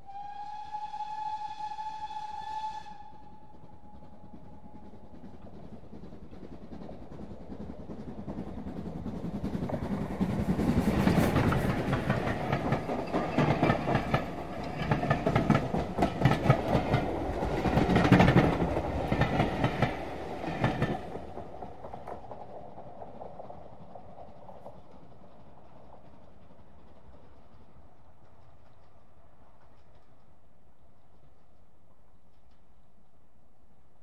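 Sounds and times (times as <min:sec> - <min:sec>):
steam train passing at speed: 0:00.0 - 0:34.0
wheels clattering over rail joints: 0:05.1 - 0:29.0.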